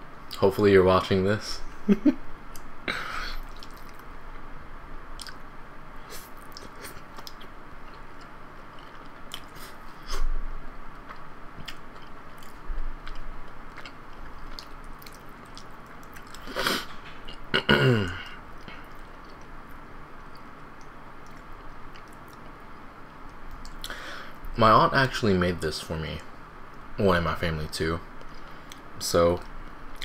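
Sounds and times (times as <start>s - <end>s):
person chewing: 3.3s - 4.1s, 5.2s - 5.4s, 6.1s - 10.3s, 11.0s - 19.5s.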